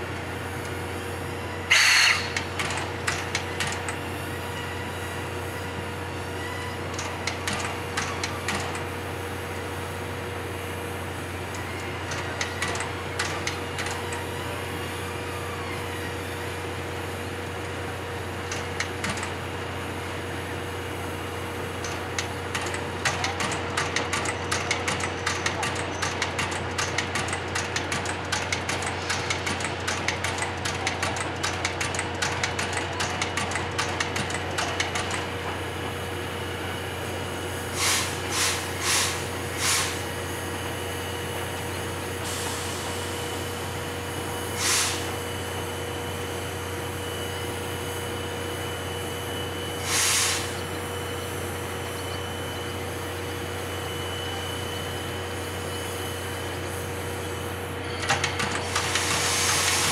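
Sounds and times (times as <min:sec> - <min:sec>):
sharp hisses of steam: 0:37.4 - 0:47.0, 0:47.7 - 0:51.8, 0:58.6 - 0:59.9.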